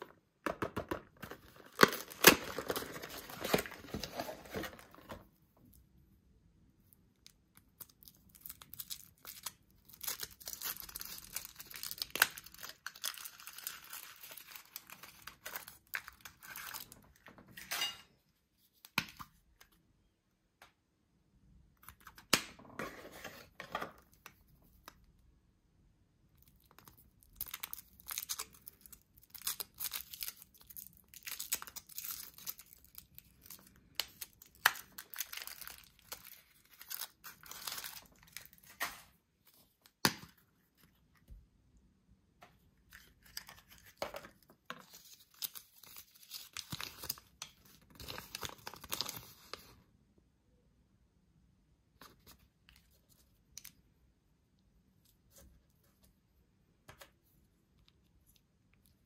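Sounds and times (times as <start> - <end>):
foil wrappers crinkling and tearing: 7.9 - 17.0, 27.3 - 38.9.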